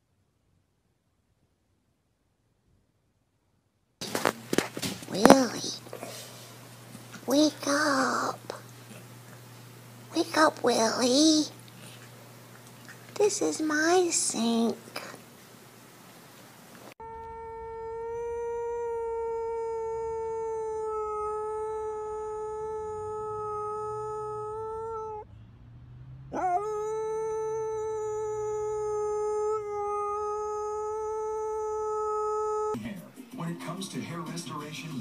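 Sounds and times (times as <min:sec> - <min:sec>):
dog breath: 0:04.0 - 0:13.2
dog howling: 0:05.0 - 0:09.4, 0:17.0 - 0:25.3, 0:26.3 - 0:32.8.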